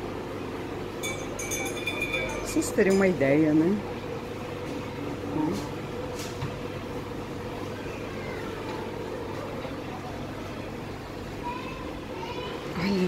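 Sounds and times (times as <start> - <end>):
steady mall hum: 0.0 - 13.0
faint distant voices: 7.6 - 13.0.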